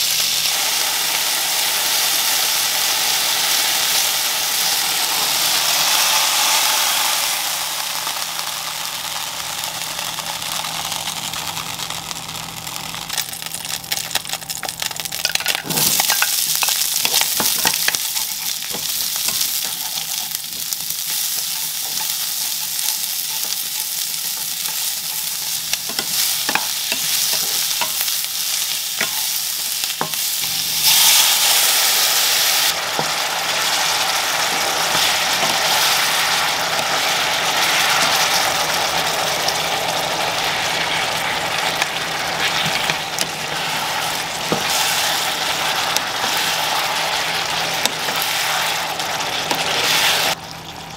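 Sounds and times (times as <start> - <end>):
sauce hissing in hot pan: 0.0 - 13.5, 15.6 - 50.4
food sizzling in frying pan: 0.0 - 50.9
spatula scraping pan: 15.3 - 28.1, 41.8 - 47.2.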